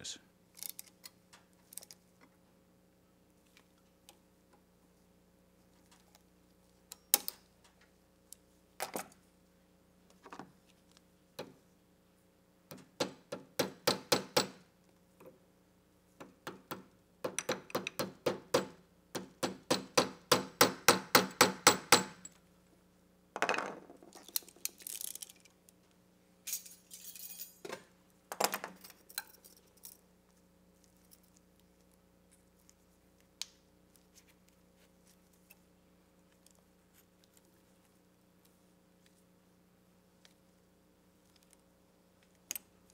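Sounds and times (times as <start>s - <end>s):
scraping metal clinks: 26.5s - 27.6s.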